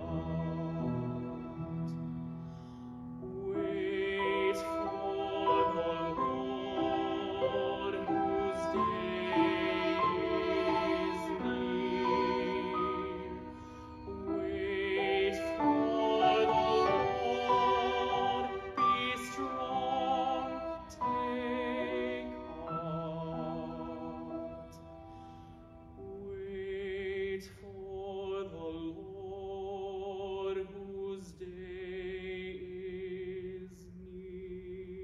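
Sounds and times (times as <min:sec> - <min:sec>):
violin: 0:00.0 - 0:26.8
piano: 0:00.0 - 0:35.0
man singing a hymn: 0:03.4 - 0:13.5, 0:14.3 - 0:24.7, 0:26.0 - 0:35.0.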